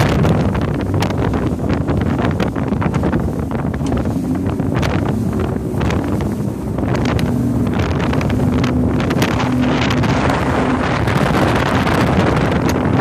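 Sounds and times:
outboard motor droning: 0.0s - 13.0s
wind buffeting microphone: 0.0s - 13.0s.

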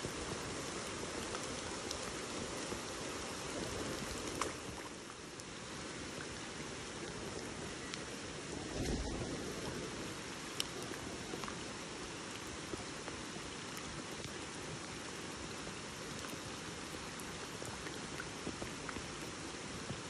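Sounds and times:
rain falling on water: 0.0s - 20.0s.

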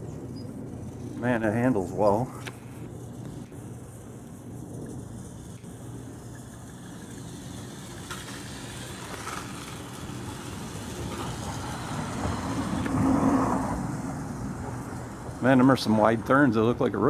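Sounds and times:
low traffic rumble: 0.0s - 17.0s
van driving past: 6.3s - 16.4s.

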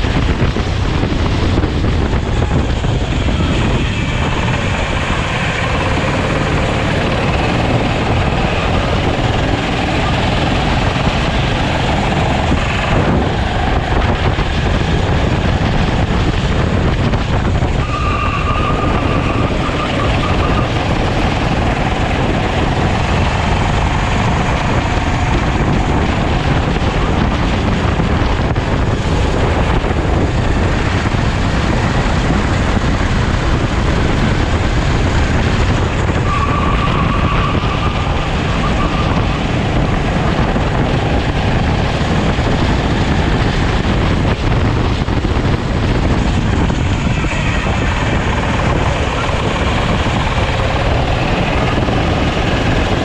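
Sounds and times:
kart engine running hard: 0.0s - 53.0s
wind buffeting on camera: 0.0s - 53.0s.

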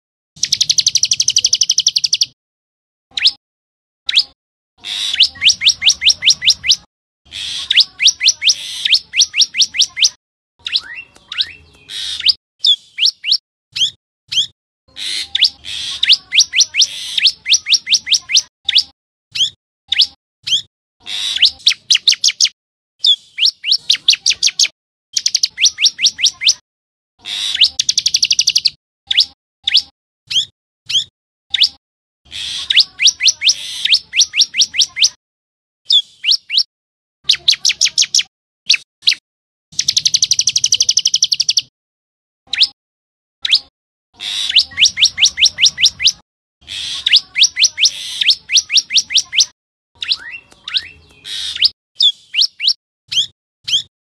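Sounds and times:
bird calling sharp high notes: 43.4s - 53.8s.

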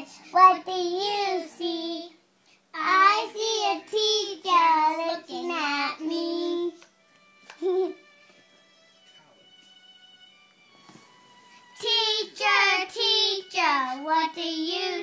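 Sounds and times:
girl singing: 0.0s - 2.2s, 2.8s - 6.9s, 11.8s - 15.0s.

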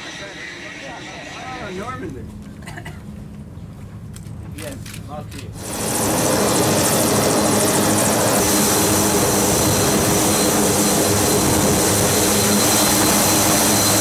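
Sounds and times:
turboprop engines droning: 0.0s - 14.0s.

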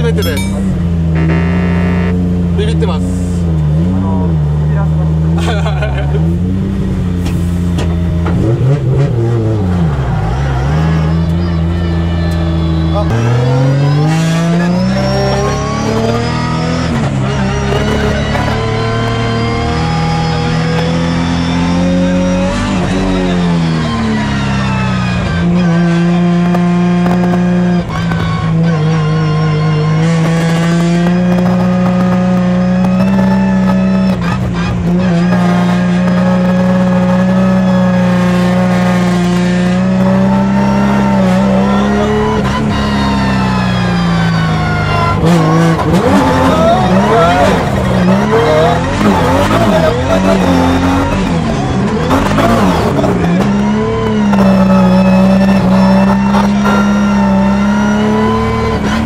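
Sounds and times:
high-revving car engine: 0.0s - 59.0s
tyres squealing: 40.0s - 59.0s.

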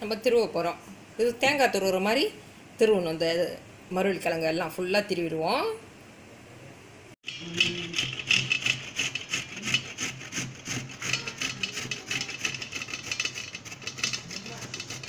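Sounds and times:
root rasping on metal grater: 7.3s - 15.0s.

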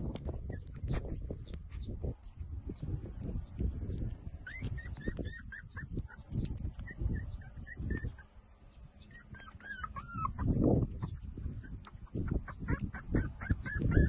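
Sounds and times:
shuffling and rustling of puppies: 0.0s - 8.2s
puppies whimpering and squeaking: 0.3s - 2.1s, 4.3s - 8.3s, 8.9s - 14.0s.

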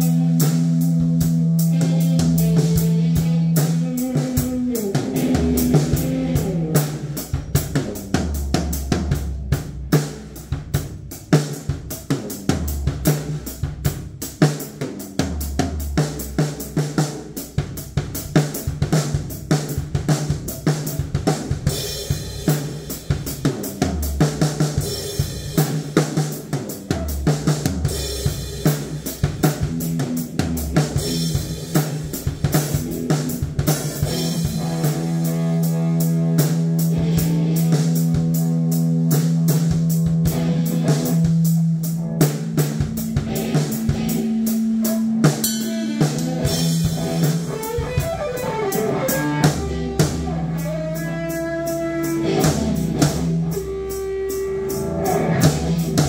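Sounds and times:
drum kit kick and snare hits: 3.8s - 35.5s, 39.2s - 50.6s, 52.2s - 53.6s
low guitar chord ringing: 45.3s - 50.0s.

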